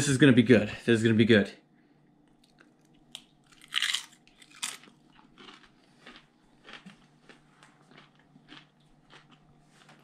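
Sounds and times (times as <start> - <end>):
chewing: 2.3 - 10.0
tortilla chip crunching: 2.4 - 10.0.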